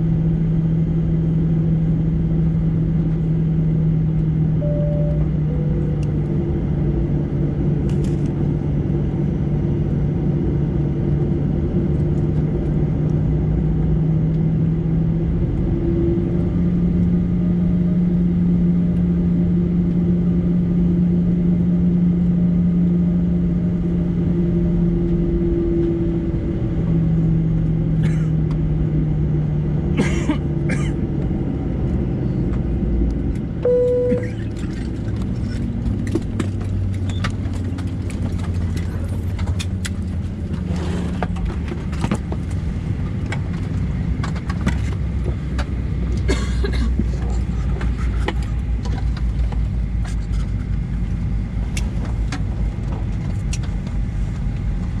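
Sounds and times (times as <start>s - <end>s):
single chime tone: 4.6s - 6.1s, 33.6s - 34.4s
clicks and rattles in cabin: 41.2s - 51.0s.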